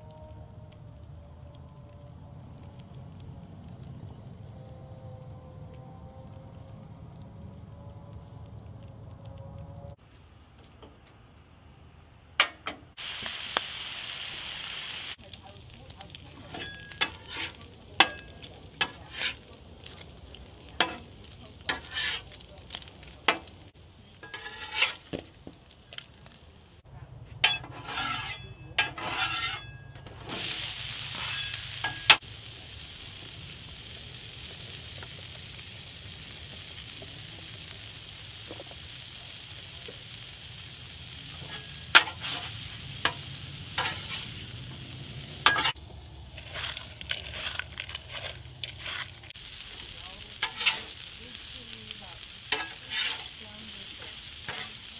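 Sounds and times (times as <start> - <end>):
vegetables sizzling on griddle: 1.6 - 2.9, 12.9 - 26.8, 27.8 - 28.4, 30.2 - 54.9
bacon frying with pops: 12.4 - 26.8, 30.3 - 54.9
spatula scraping griddle: 15.6 - 25.8, 27.4 - 32.2, 41.1 - 54.9.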